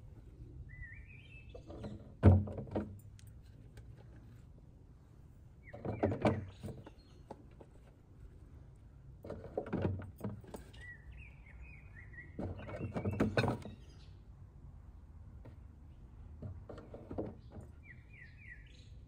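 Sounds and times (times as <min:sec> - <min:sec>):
bird chirping: 0:00.6 - 0:02.1, 0:05.6 - 0:07.4, 0:10.7 - 0:14.3, 0:17.4 - 0:19.0.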